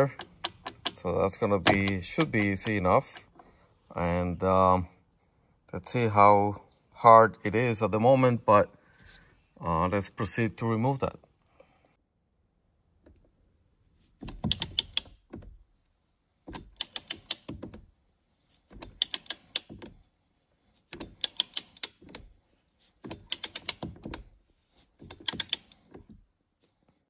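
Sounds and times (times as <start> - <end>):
ratchet wrench clicking: 1.6 - 3.4, 18.8 - 19.7, 21.0 - 21.9, 23.2 - 23.8, 25.1 - 25.8.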